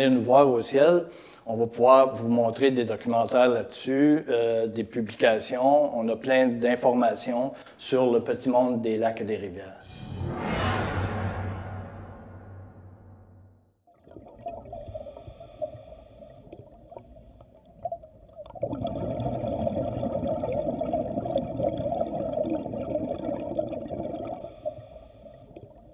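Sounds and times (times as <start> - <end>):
underwater rush with bubbling: 13.9 - 25.8.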